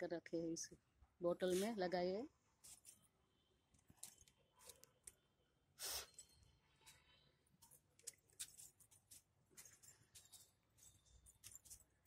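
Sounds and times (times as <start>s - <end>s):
faint clicks and rustles: 2.6s - 3.1s, 3.7s - 5.2s, 6.1s - 12.0s.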